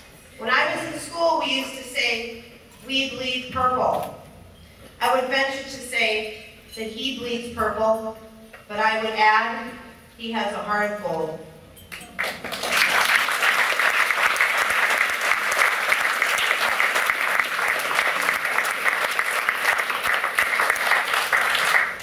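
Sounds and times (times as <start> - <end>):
audience applauding: 12.2 - 22.0.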